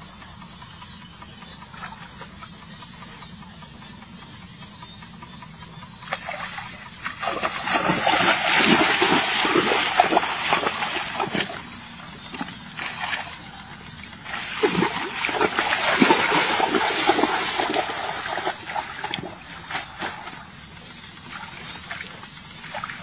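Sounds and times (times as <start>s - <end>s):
feet splashing through shallow water: 6.0s - 23.0s.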